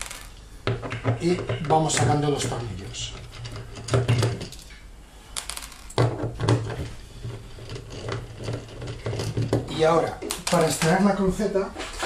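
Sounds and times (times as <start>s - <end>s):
metal scraping on plastic: 6.2s - 11.0s.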